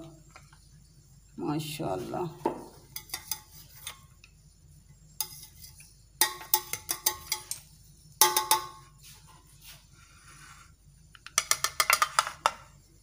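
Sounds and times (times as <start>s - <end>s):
metal spatula scraping a metal pot: 2.9s - 4.1s, 5.1s - 8.8s.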